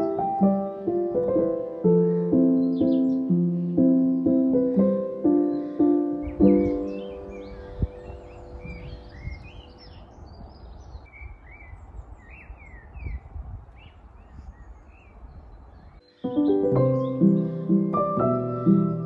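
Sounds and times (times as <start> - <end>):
piano notes: 0.0 - 10.0, 16.0 - 19.0
small birds chirping: 0.0 - 19.0.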